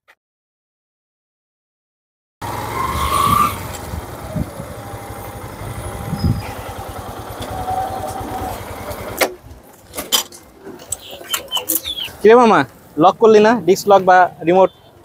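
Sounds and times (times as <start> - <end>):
motorcycle engine pulsing: 2.4 - 9.2.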